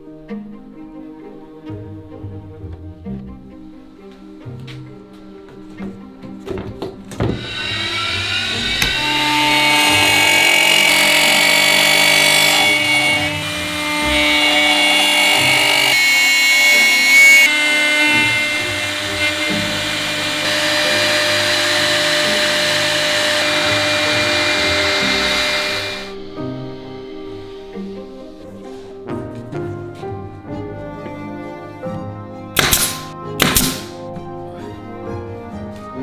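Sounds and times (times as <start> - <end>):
router cutting wood: 7.1 - 28.8.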